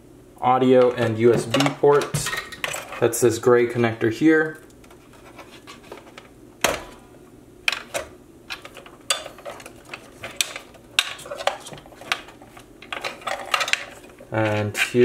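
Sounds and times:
wires rubbing: 0:04.4 - 0:06.3, 0:08.5 - 0:15.0.

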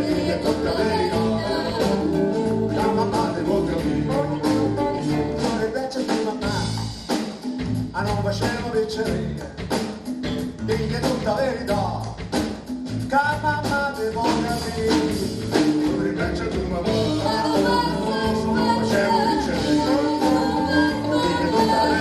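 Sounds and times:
electric guitars: 0:00.0 - 0:05.7, 0:14.7 - 0:22.0
woman singing: 0:00.0 - 0:06.6, 0:16.2 - 0:22.0
live band playing: 0:00.0 - 0:22.0.

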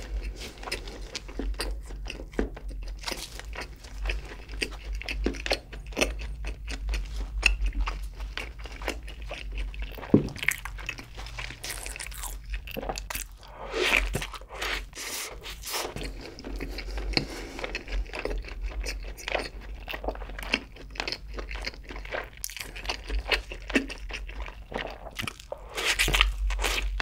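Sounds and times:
biting into a burger: 0:00.0 - 0:27.0
chewing with small clicks: 0:00.2 - 0:13.5, 0:15.9 - 0:27.0.

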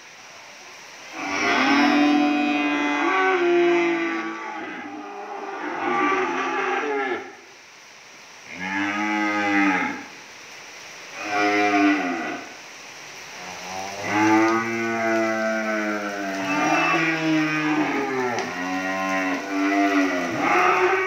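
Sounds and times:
cattle mooing: 0:13.6 - 0:21.0.

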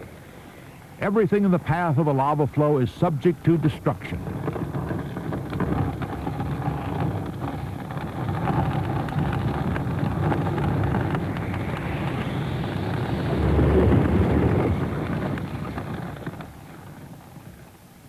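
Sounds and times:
fire crackling: 0:00.1 - 0:18.0
roar of flames: 0:04.0 - 0:17.7.

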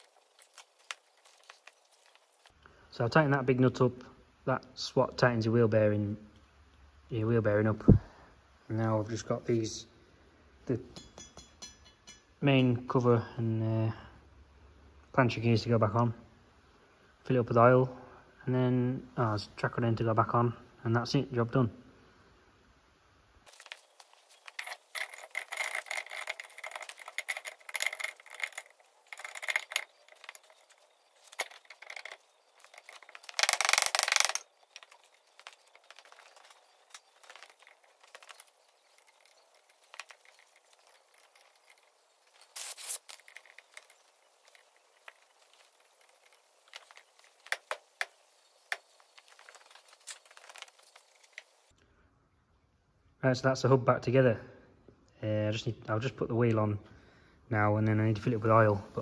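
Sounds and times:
metal tools clinking: 0:00.0 - 0:02.6, 0:11.0 - 0:12.3, 0:23.5 - 0:51.7.

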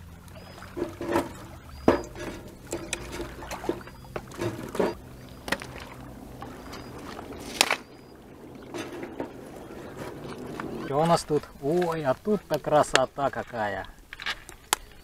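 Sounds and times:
water lapping at shore: 0:00.0 - 0:15.0
dry sticks cracking: 0:07.4 - 0:07.9.

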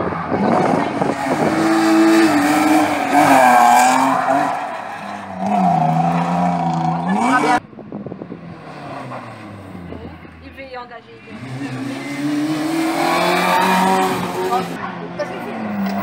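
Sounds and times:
rally car engine revving: 0:00.0 - 0:10.4, 0:11.2 - 0:16.0.

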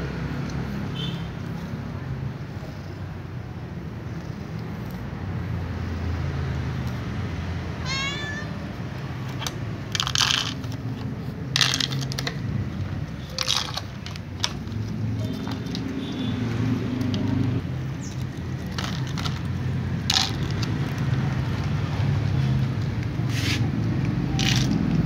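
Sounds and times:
cat meowing: 0:07.8 - 0:08.7
crinkly scraping of plastic dishes: 0:09.2 - 0:12.6, 0:13.2 - 0:16.0, 0:18.0 - 0:21.1, 0:24.4 - 0:25.0.

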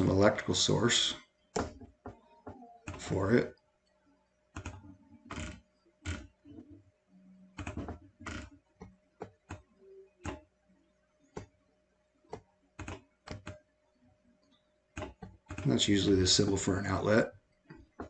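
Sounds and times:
mouse and keyboard clicking: 0:04.6 - 0:06.2, 0:12.3 - 0:13.6, 0:15.0 - 0:15.7.

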